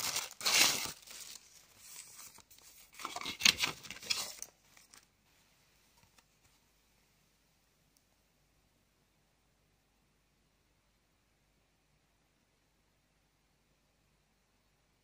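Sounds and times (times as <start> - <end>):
plastic bags crinkling: 0.0 - 5.0.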